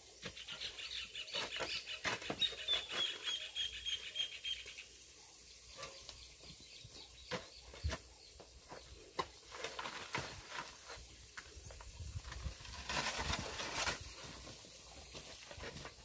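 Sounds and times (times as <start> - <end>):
bird chirping high: 0.2 - 5.0.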